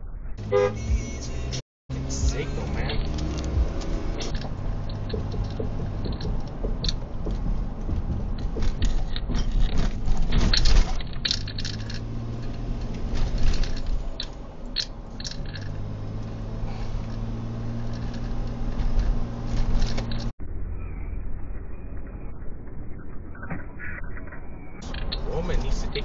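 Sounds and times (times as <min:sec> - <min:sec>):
road and engine rumble: 0:00.0 - 0:26.0
low engine hum: 0:00.3 - 0:23.4
small clicks and rattles: 0:04.2 - 0:16.3, 0:17.0 - 0:20.3, 0:24.8 - 0:26.0.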